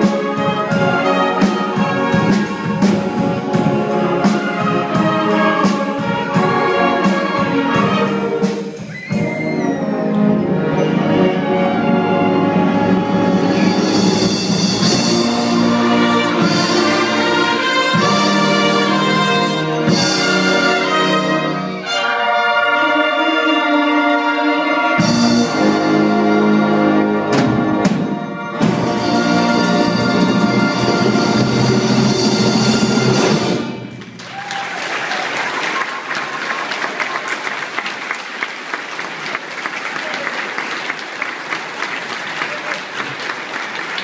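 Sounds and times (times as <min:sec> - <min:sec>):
wind band playing: 0:00.0 - 0:44.0
audience applause: 0:33.9 - 0:44.0.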